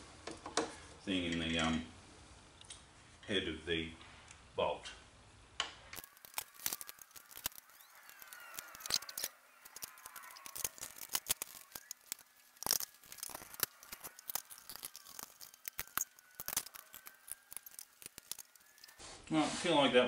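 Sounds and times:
metal parts and tools clicking: 0:06.0 - 0:19.0.

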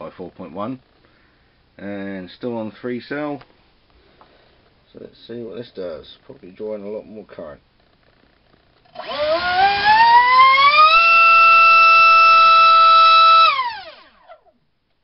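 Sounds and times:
motor and propeller whine: 0:09.0 - 0:10.9, 0:13.4 - 0:14.3.

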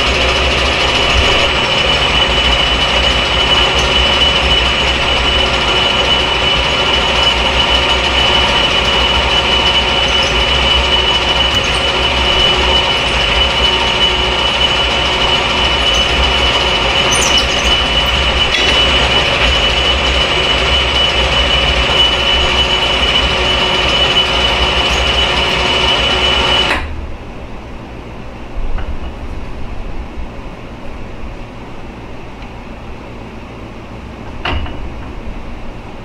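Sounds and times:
metal lathe drilling with whine: 0:00.0 - 0:26.8.

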